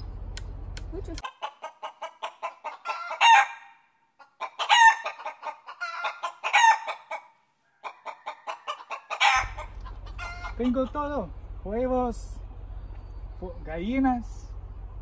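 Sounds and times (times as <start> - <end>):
chicken squawks: 1.2 - 11.1
chickens clucking: 1.2 - 11.7.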